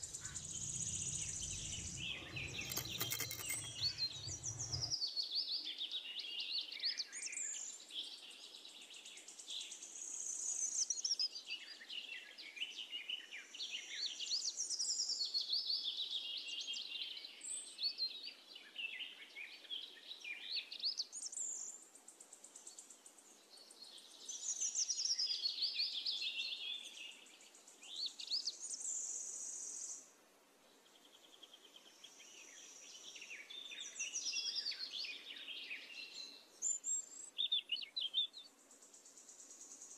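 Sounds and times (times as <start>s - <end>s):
birds chirping and warbling: 0.0s - 6.7s.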